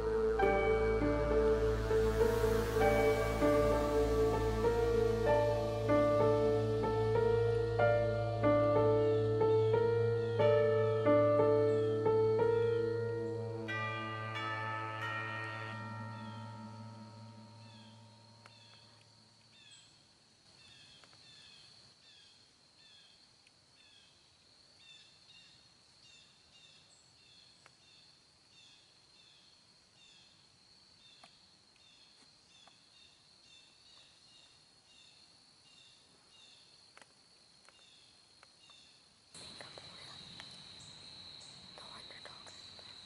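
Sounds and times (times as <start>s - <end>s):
insect drone high whine: 0.0s - 20.8s, 37.6s - 43.0s.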